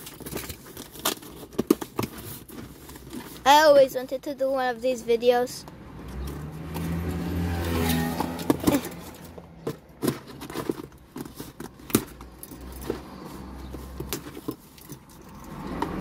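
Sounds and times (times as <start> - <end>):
cardboard box clicks and scrapes: 6.7 - 14.7.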